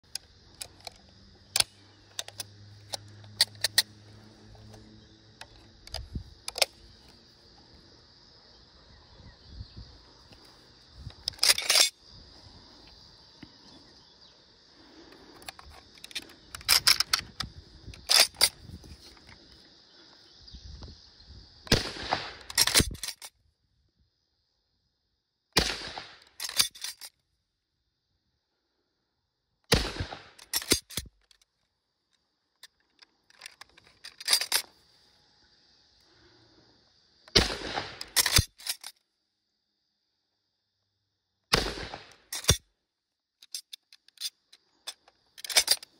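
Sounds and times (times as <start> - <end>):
metallic handling clicks: 0.1 - 4.0, 5.4 - 7.2, 10.3 - 12.0, 15.1 - 19.5, 22.4 - 23.3, 26.2 - 27.2, 30.4 - 31.5, 32.6 - 34.8, 38.0 - 39.0, 42.3 - 42.6, 43.4 - 45.9
rifle bolt clacking: 5.4 - 6.8, 30.4 - 31.1, 44.9 - 45.9
rifle shots: 21.7 - 22.9, 25.6 - 26.2, 29.7 - 30.8, 37.3 - 38.5, 41.5 - 42.6.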